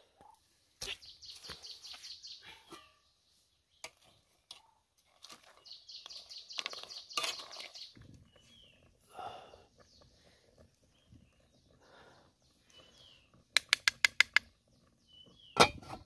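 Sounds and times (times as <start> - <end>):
small bird chirping: 0.8 - 8.9, 9.8 - 15.6
pot lid and spoon clinking: 15.6 - 16.0.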